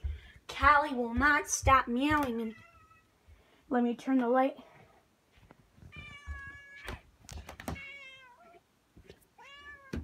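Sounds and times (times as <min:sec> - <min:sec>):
cat meowing: 0:05.9 - 0:07.0, 0:07.7 - 0:08.6, 0:09.4 - 0:10.0.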